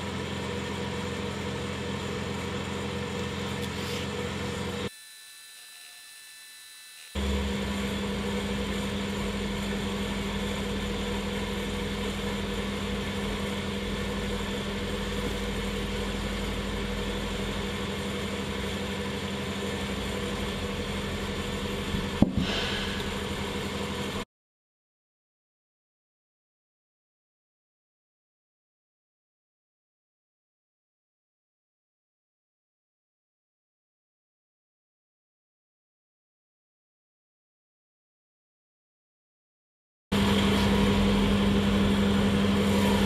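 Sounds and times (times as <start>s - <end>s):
electrical machine hum: 0.0s - 4.9s, 7.2s - 24.2s, 40.2s - 43.0s
sharp knock: 22.0s - 23.2s.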